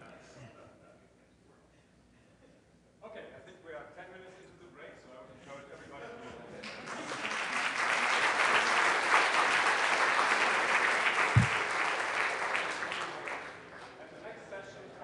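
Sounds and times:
audience applauding: 6.6s - 13.8s
low thump: 11.4s - 11.6s.

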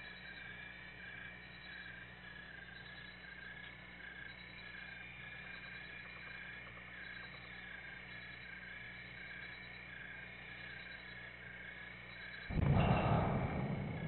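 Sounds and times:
night insects chirping: 0.0s - 14.0s
low steady hum: 7.2s - 14.0s.

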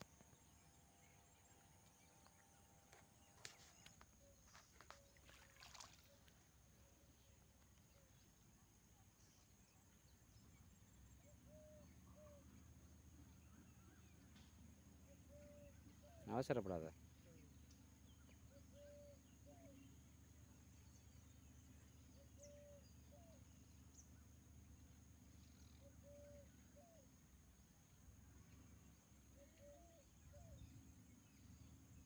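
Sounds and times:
soft clicks and rustles: 1.8s - 5.5s.

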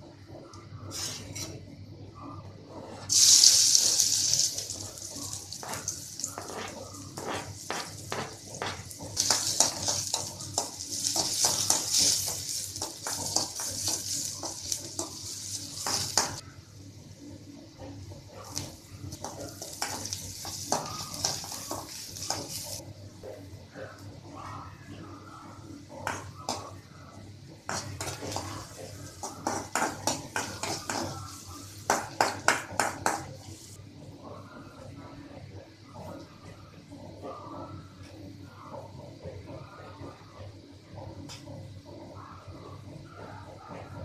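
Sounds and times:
onions sizzling in hot oil: 3.1s - 16.4s, 18.4s - 22.8s, 27.7s - 33.8s
metal ladle scraping a pan: 5.6s - 14.4s.

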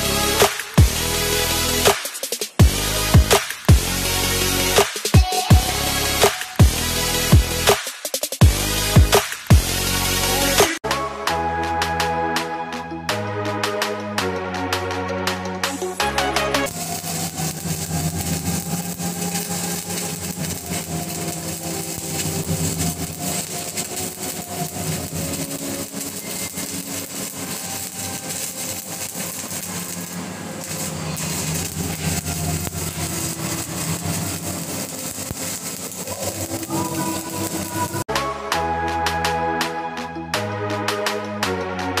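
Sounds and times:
welding arc crackling: 0.0s - 10.8s, 15.6s - 38.1s.

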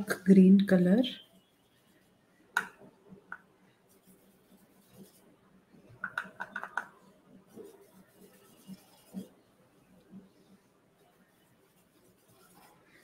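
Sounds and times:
paintbrush clicking on palette: 6.0s - 6.9s.

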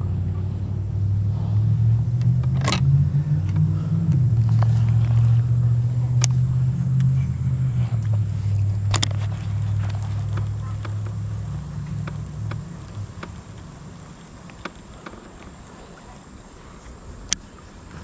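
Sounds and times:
low motor hum: 0.0s - 18.0s
fishing reel clicks: 8.7s - 17.4s.

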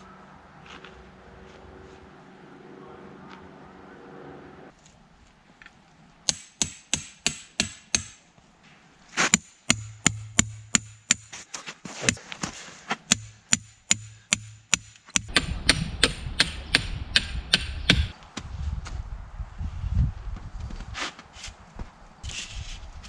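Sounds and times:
sharp evenly spaced knocks: 6.3s - 8.2s, 9.2s - 12.2s, 13.0s - 18.2s.

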